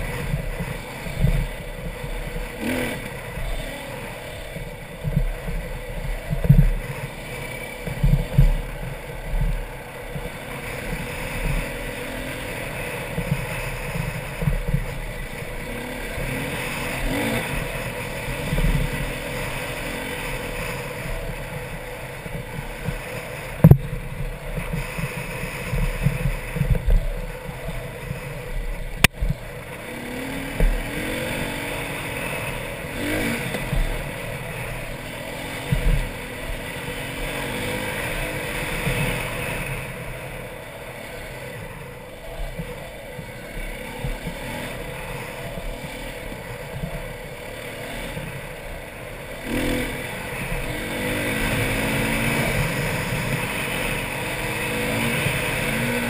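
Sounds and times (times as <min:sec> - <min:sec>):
wind rumble on microphone: 0:00.0 - 0:03.7, 0:04.4 - 0:11.8, 0:12.6 - 0:19.4, 0:20.7 - 0:29.8
dirt bike engine revving: 0:00.0 - 0:56.0.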